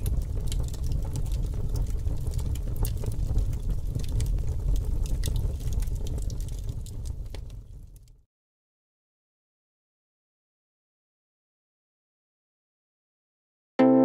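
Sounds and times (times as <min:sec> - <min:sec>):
gas burner flame rumbling: 0:00.0 - 0:08.1
sharp flame crackles: 0:00.0 - 0:08.2.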